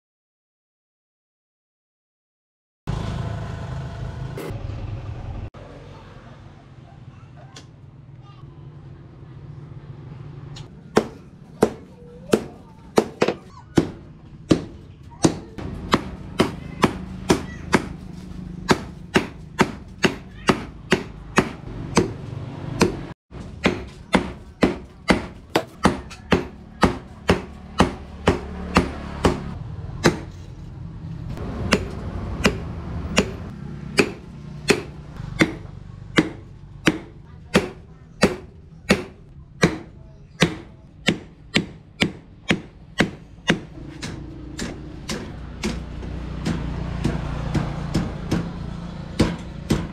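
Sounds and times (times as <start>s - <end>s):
hammer striking metal on anvil: 31.6s - 48.6s, 49.2s - 49.9s.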